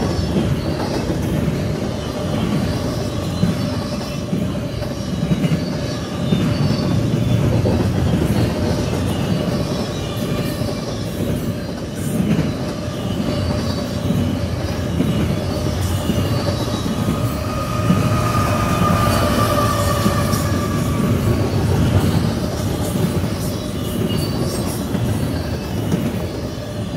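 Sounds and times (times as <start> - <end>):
freight train wheels rumbling on rail: 0.0 - 26.9
wheel squeal: 13.1 - 26.0
high steady tone: 15.6 - 22.8.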